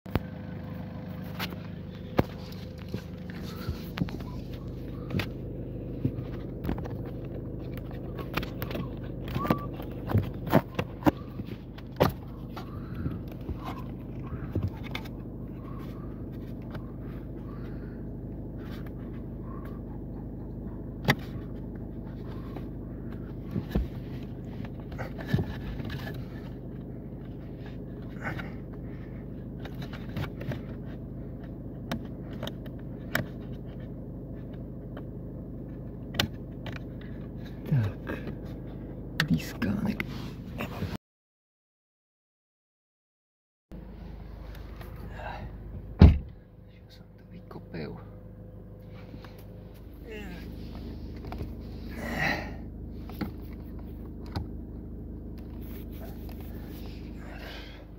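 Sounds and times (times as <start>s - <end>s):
steady low hum: 0.1s - 41.0s, 43.7s - 57.9s.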